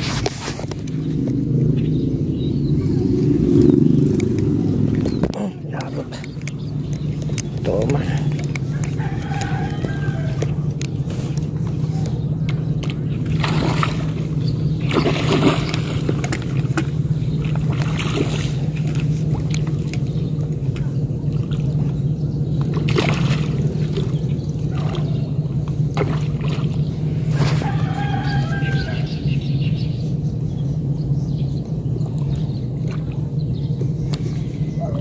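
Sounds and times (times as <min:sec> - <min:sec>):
water sloshing and splashing: 0:00.0 - 0:29.6, 0:31.6 - 0:35.0
small boat engine humming: 0:00.0 - 0:35.0.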